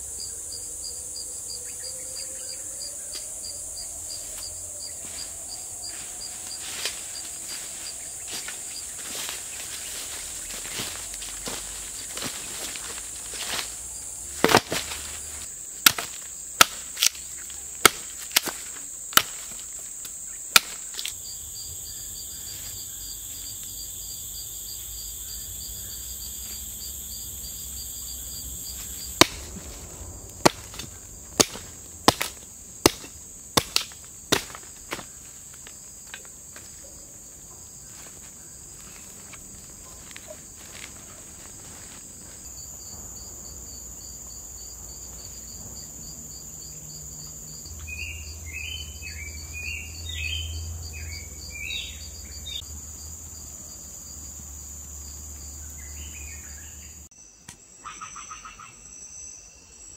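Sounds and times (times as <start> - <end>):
high insect drone: 0.0 - 59.9
machete chopping wood: 14.4 - 15.0, 15.8 - 19.7, 20.5 - 21.2, 28.8 - 29.7, 30.4 - 35.2.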